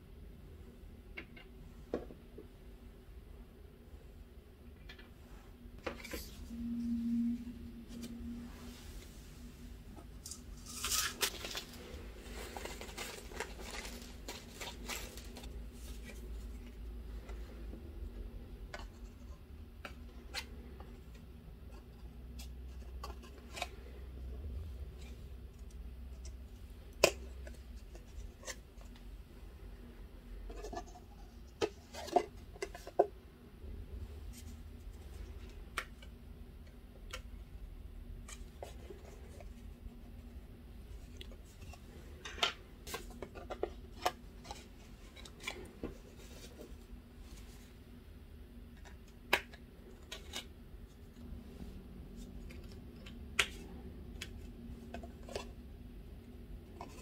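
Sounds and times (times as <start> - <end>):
card and packaging rustling: 10.1 - 16.8.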